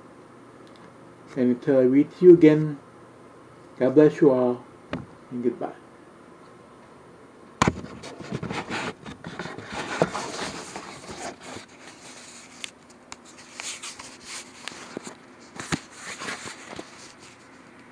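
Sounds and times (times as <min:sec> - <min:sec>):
camera handling rubbing and scraping: 0:07.6 - 0:17.5.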